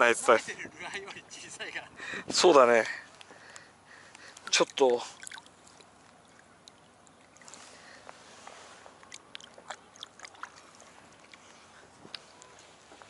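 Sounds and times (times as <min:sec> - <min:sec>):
faint water lapping: 0:00.0 - 0:13.0
small ticks and splashes: 0:03.1 - 0:13.0.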